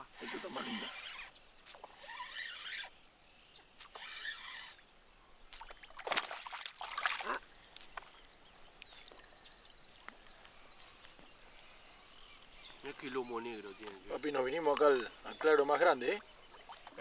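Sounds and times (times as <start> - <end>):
fish splashing at water surface: 5.6 - 7.3.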